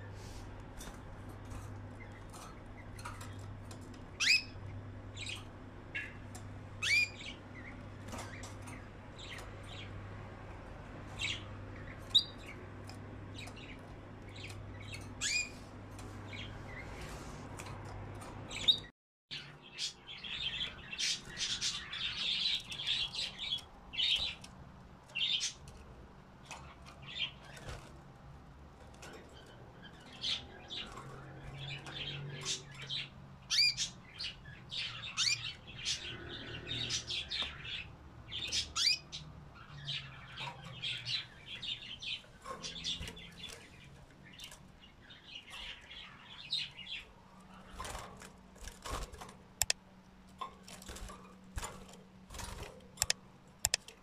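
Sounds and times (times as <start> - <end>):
canaries chirping: 0.0 - 54.0
sharp clicks: 49.6 - 49.8, 53.0 - 54.0.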